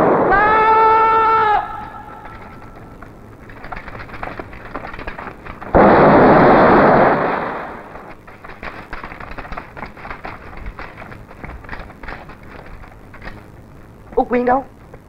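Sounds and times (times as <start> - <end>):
explosion blast: 0.0 - 1.3, 5.6 - 8.1
sharp crackles: 0.0 - 15.0.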